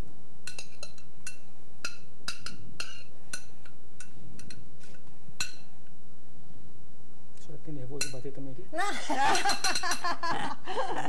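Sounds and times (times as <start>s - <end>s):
glass bowl clinking: 9.3s - 10.1s.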